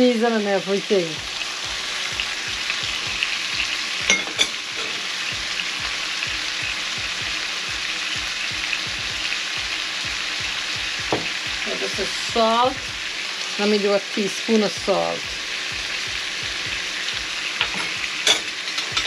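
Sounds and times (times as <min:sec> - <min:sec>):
food sizzling in oil: 0:00.0 - 0:19.0
metallic clink: 0:04.1 - 0:04.9.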